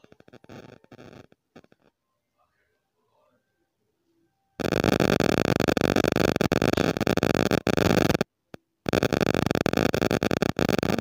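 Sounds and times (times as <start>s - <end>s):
loud crackling static: 0.0s - 2.0s, 4.6s - 11.0s
steady electrical buzz: 0.0s - 2.0s, 4.6s - 11.0s.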